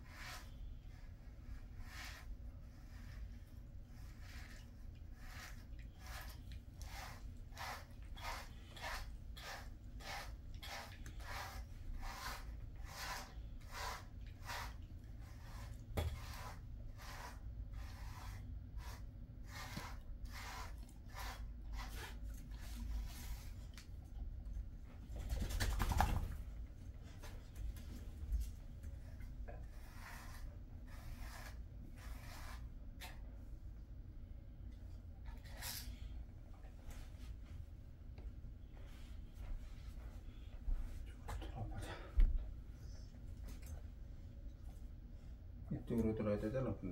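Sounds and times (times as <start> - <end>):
brush rasping through dog fur: 0.0 - 23.9, 28.4 - 33.2.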